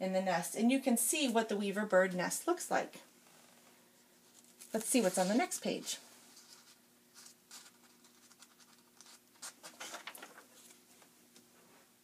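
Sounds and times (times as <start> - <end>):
book page turning: 4.3 - 5.7, 6.3 - 11.1.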